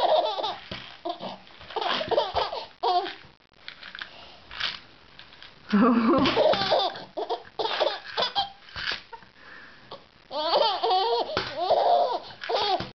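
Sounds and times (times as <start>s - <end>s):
baby laughing: 0.0s - 3.2s, 5.8s - 8.6s, 10.3s - 12.9s.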